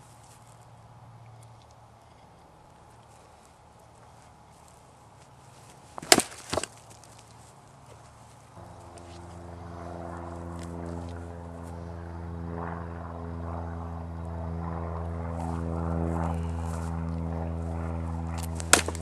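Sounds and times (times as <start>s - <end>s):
low engine drone: 8.5s - 19.0s
sword cutting through target: 18.4s - 19.0s.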